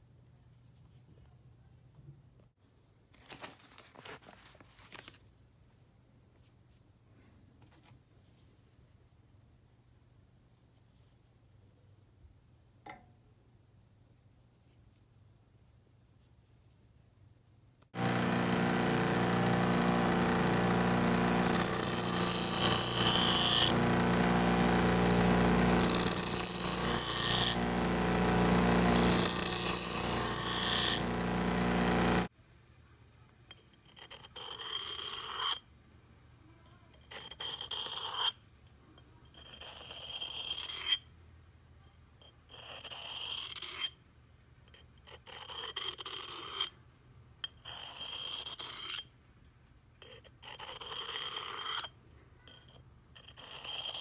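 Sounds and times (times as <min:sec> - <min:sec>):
bench grinder motor running: 0:18.0 - 0:32.3
knife blade grinding on wheel: 0:18.0 - 0:32.3
blade rasping on sharpening stone: 0:21.4 - 0:23.8, 0:25.7 - 0:27.7, 0:28.9 - 0:31.2, 0:33.8 - 0:35.6, 0:37.1 - 0:38.4, 0:39.4 - 0:41.1, 0:42.2 - 0:44.0, 0:44.7 - 0:46.8, 0:47.4 - 0:49.1, 0:50.0 - 0:54.0.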